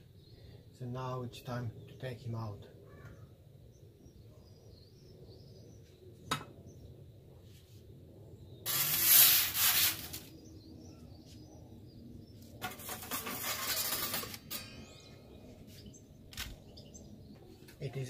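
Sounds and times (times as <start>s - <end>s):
metal peel scraping: 8.7s - 10.3s, 12.6s - 15.8s.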